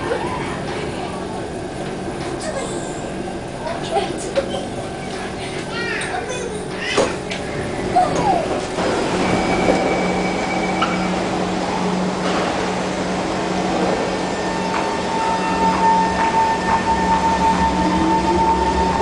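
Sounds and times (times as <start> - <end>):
train electrical hum: 0.0 - 19.0
train motor whine: 7.2 - 19.0.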